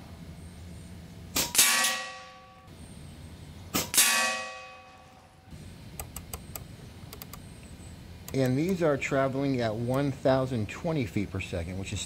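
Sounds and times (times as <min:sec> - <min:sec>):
air rifle shots: 0:01.3 - 0:02.2, 0:03.7 - 0:04.7.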